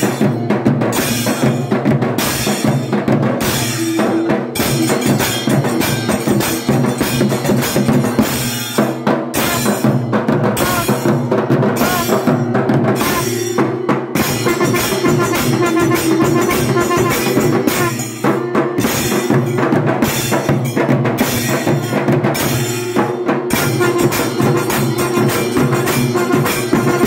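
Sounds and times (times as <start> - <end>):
barrel drums beaten with sticks: 0.0 - 27.0
brass hand cymbals clashing: 0.0 - 27.0.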